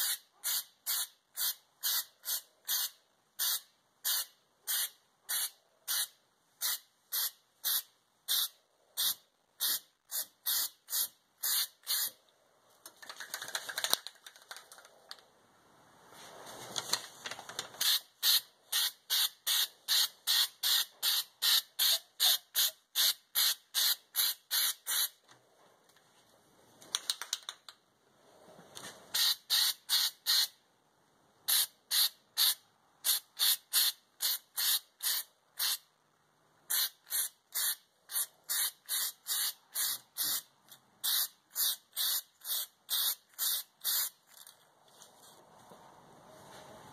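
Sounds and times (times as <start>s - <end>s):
aerosol can spraying: 36.7s - 44.1s.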